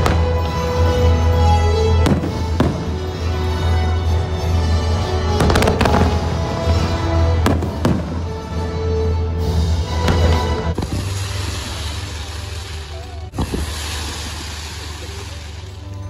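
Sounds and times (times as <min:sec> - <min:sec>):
music with sustained notes: 0:00.0 - 0:16.0
fireworks bangs: 0:02.0 - 0:03.3, 0:05.4 - 0:08.3, 0:10.0 - 0:16.0.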